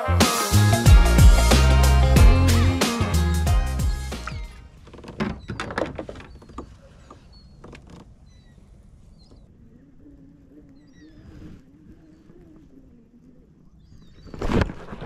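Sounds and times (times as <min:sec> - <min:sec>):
faint bird chirps: 0:08.2 - 0:14.5.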